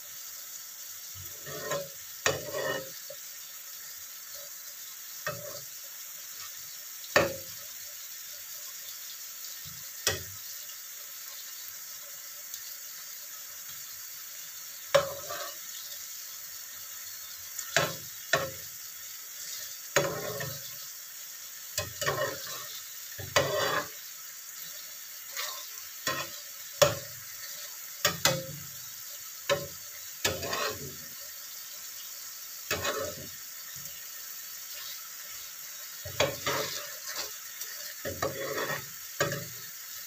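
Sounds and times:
sauce sizzling: 0:00.0 - 0:40.0
spatula scraping frying pan: 0:01.1 - 0:03.4, 0:04.3 - 0:07.6, 0:09.6 - 0:10.5, 0:14.4 - 0:16.3, 0:17.0 - 0:40.0.

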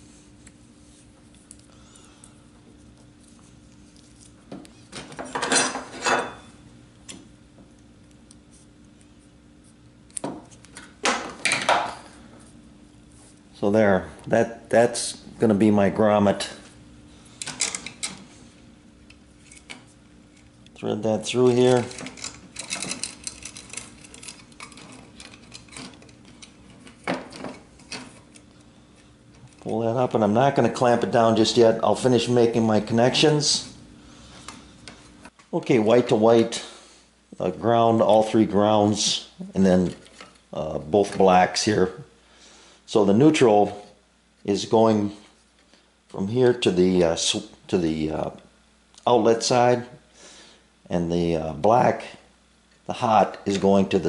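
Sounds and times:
tools clattering on metal bench: 0:05.0 - 0:06.5, 0:21.7 - 0:28.1
cable clicks and rattles: 0:21.6 - 0:28.4.

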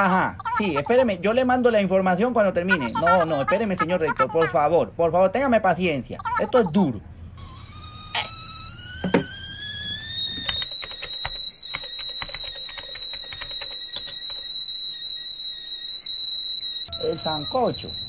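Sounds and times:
high thin whistle: 0:09.0 - 0:18.0
typing on laptop keyboard: 0:10.2 - 0:14.8.

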